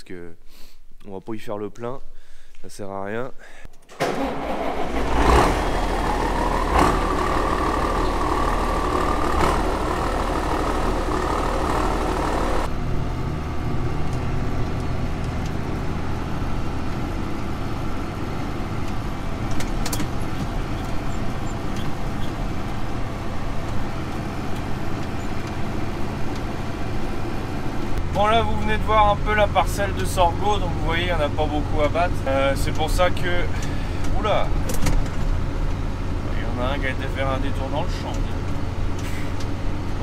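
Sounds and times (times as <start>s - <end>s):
diesel engine running: 3.9s - 40.0s
high whine: 5.6s - 13.1s.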